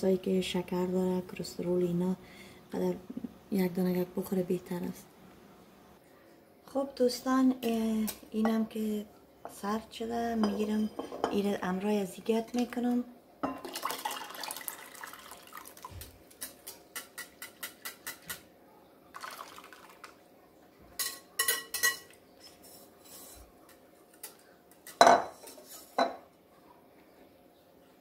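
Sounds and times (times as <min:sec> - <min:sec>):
milk mixture pouring: 0:13.6 - 0:16.3, 0:19.1 - 0:20.2
whisk scraping and tapping bowl: 0:16.0 - 0:18.4.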